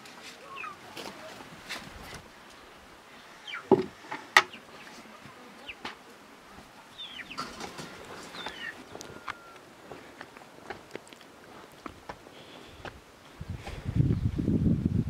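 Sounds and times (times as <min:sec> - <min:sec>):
birds chirping: 0:00.4 - 0:01.2, 0:02.4 - 0:12.9
plastic bucket knocks: 0:03.7 - 0:03.9.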